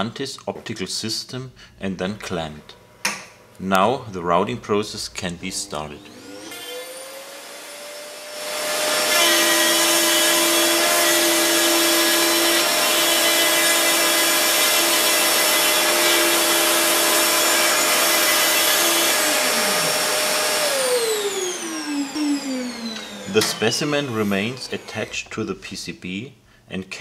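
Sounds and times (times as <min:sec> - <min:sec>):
router spindle whine: 0:06.0 - 0:25.4
router bit milling circuit board: 0:08.2 - 0:25.3.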